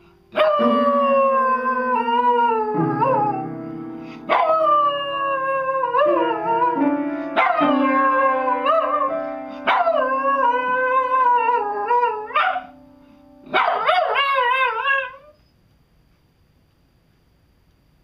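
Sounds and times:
low piano notes: 0.0s - 13.6s
dog howling: 0.4s - 3.5s, 4.3s - 12.7s, 13.6s - 15.4s.

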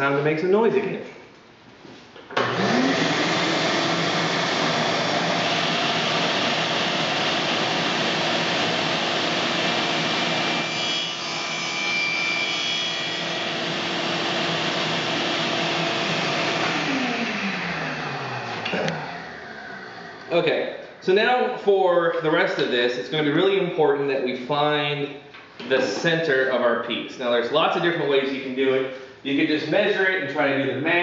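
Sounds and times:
table saw motor whine: 2.4s - 20.3s.

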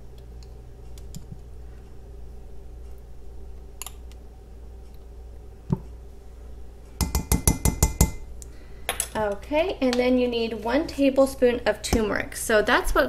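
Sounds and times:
low steady hum: 0.0s - 13.0s
plastic spoon tapping glass cup: 7.0s - 8.2s.

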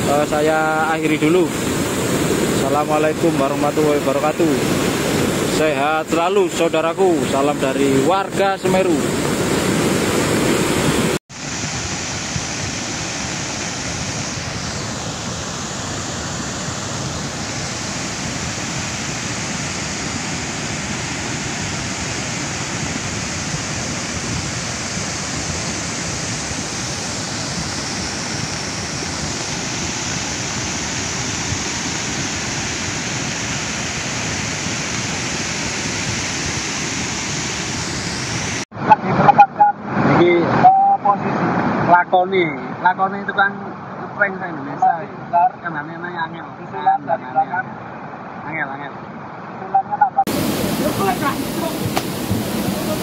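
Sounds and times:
flood water rushing: 0.0s - 38.6s, 50.1s - 53.0s.

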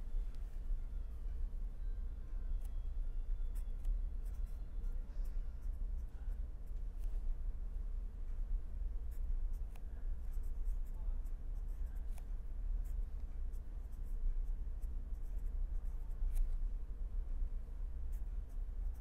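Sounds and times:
steady low hum: 0.0s - 19.0s
pen scratching on paper: 3.5s - 7.2s, 9.1s - 16.6s.

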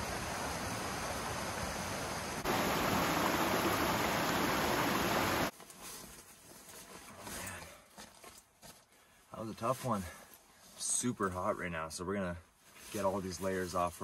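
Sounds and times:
water rushing over rocks: 0.0s - 5.5s.

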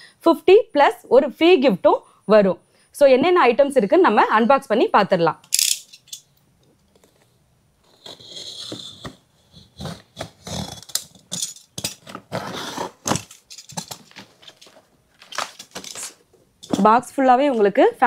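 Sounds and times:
knife cutting tape on cardboard: 8.0s - 11.2s, 12.0s - 13.3s.

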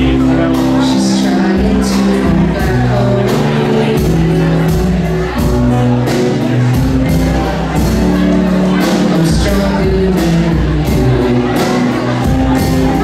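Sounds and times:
male lead vocal: 0.0s - 5.6s, 6.8s - 13.0s
live rock band playing: 0.0s - 13.0s.

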